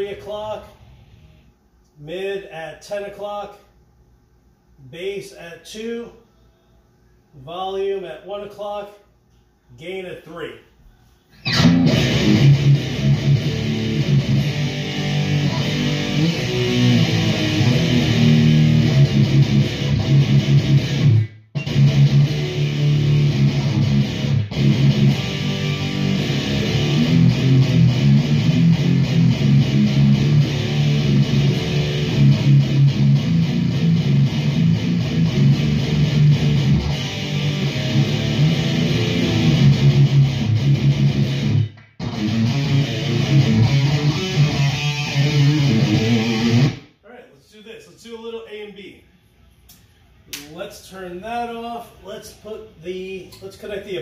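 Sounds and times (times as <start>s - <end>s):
distorted electric guitar riffing: 11.4s - 46.9s.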